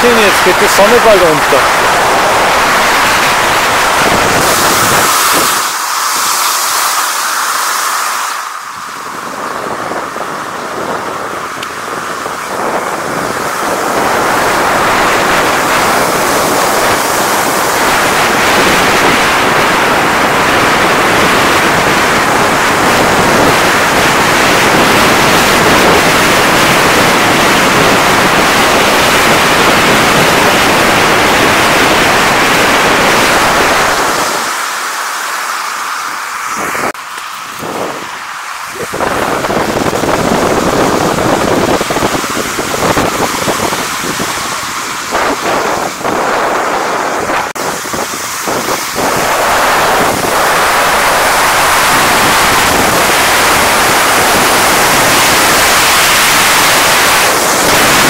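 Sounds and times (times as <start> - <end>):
skis running over icy snow: 0.0 - 9.9
wind on microphone: 0.0 - 58.0.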